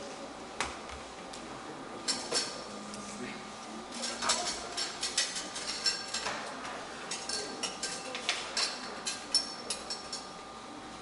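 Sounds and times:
kitchen utensils and dishes clinking: 3.9s - 10.3s.

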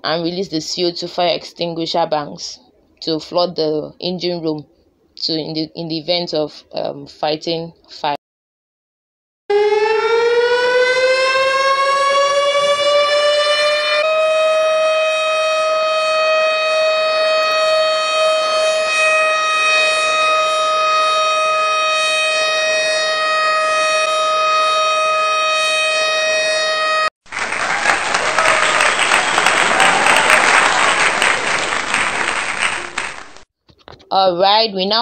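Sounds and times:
alarm siren rising tone: 9.5s - 27.1s
applause: 27.2s - 33.4s.

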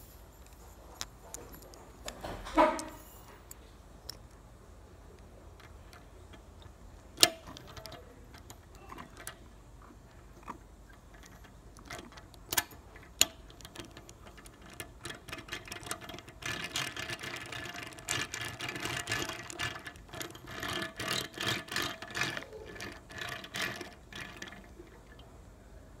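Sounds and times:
toy truck parts clattering: 5.1s - 25.3s
plastic toy clicks: 5.2s - 25.2s.

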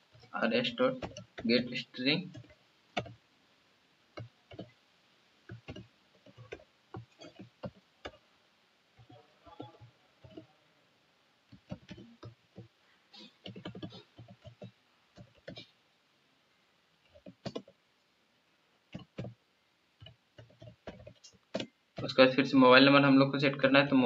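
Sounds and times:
computer keyboard typing: 0.1s - 3.2s, 4.2s - 4.8s, 5.5s - 8.2s, 9.0s - 10.5s, 11.5s - 15.7s, 17.1s - 17.8s, 18.9s - 19.4s, 20.0s - 22.2s.

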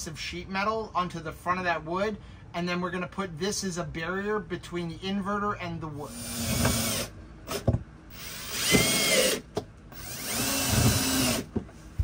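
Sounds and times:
power drill driving screws: 6.1s - 11.5s.

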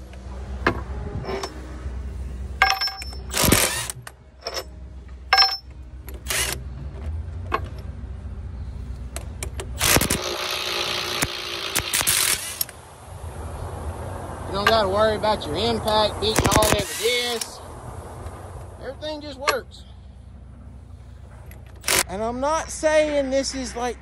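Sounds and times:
impact wrench running: 2.6s - 4.7s, 9.5s - 12.7s, 16.3s - 17.5s, 21.6s - 22.0s
steel tools clinking on metal: 5.3s - 5.8s.

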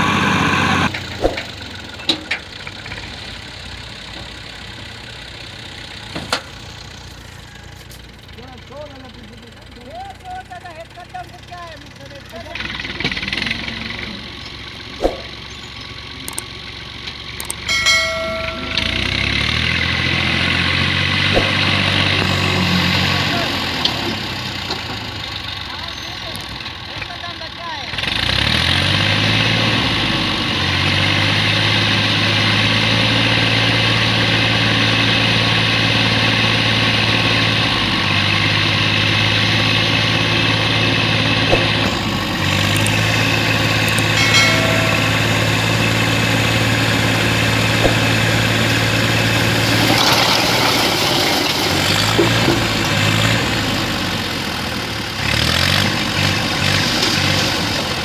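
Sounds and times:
tractor engine running: 0.0s - 58.0s.

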